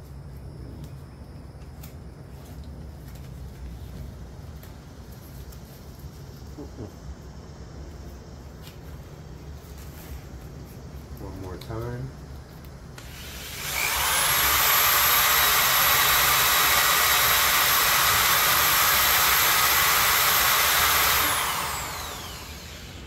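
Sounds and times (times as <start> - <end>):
power drill whining: 13.0 - 23.0.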